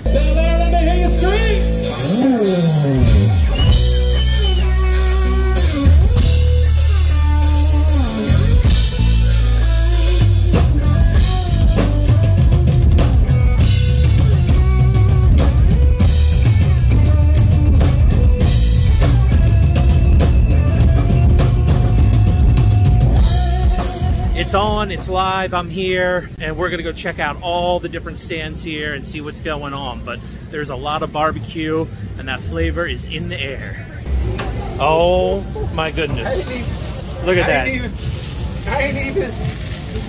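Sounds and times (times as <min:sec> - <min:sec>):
rock music: 0:00.0 - 0:25.5.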